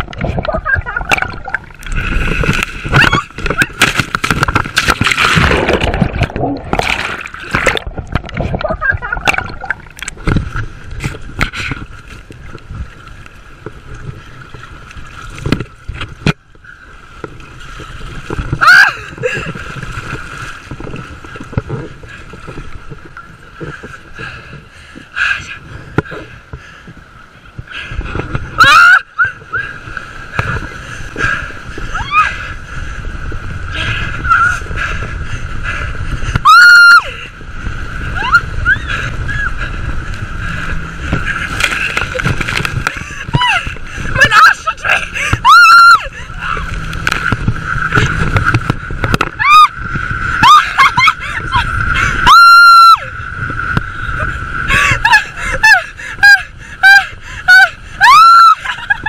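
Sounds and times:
rush of water and wind: 0.0 - 59.0
people shrieking: 2.9 - 3.8, 18.6 - 19.0, 28.6 - 29.4, 36.4 - 37.1, 43.3 - 46.8, 49.3 - 49.8, 50.4 - 53.1, 54.8 - 59.0
high-pitched screams: 36.4 - 37.1, 45.4 - 46.6, 52.2 - 53.1, 57.5 - 58.6
boat engine running: 38.6 - 52.3.

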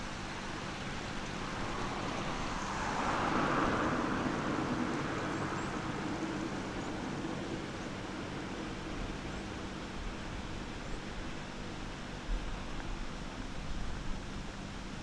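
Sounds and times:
outdoor background noise: 0.0 - 15.0
car passing: 1.4 - 7.3.

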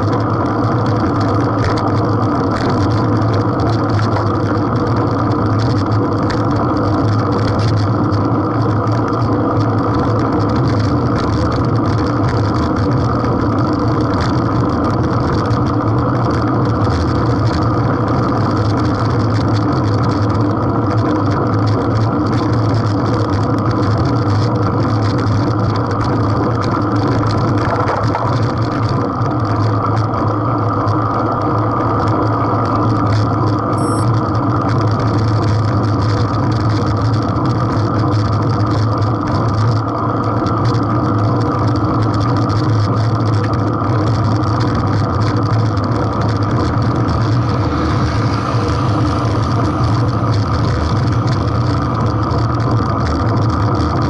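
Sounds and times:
motor engine running steadily: 0.0 - 54.0
rushing noise: 45.1 - 54.0.

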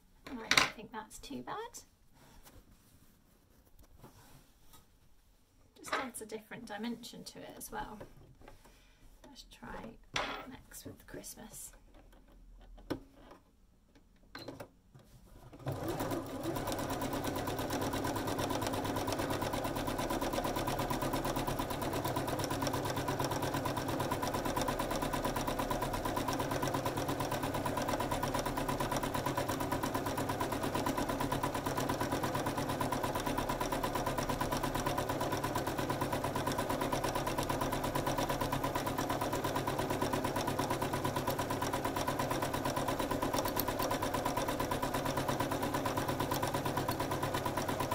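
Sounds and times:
sewing machine stitching: 15.4 - 47.9.

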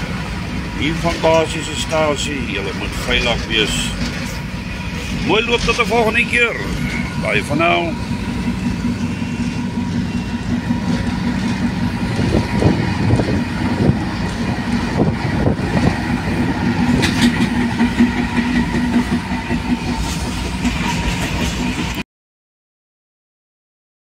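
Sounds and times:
locomotive engine hum: 0.0 - 22.0
wind and train noise rushing: 0.0 - 22.0.

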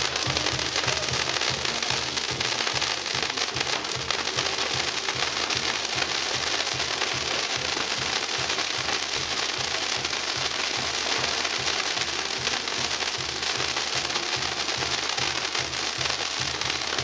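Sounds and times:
drum beating: 0.0 - 17.0
fireworks hissing and crackling: 0.0 - 17.0.

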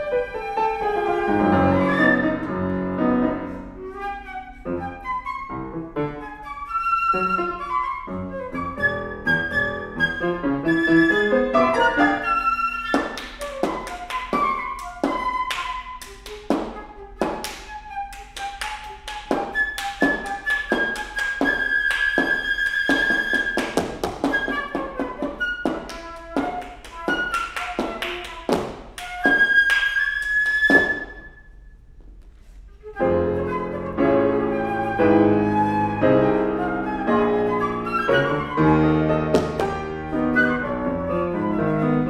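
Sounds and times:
piano chords: 0.0 - 6.6, 7.2 - 13.8, 33.0 - 42.0
flute playing: 0.0 - 31.8, 32.4 - 42.0.

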